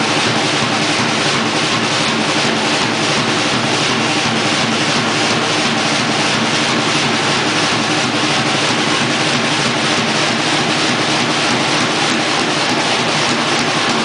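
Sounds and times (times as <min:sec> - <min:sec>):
drum kit played loudly: 0:00.0 - 0:14.0.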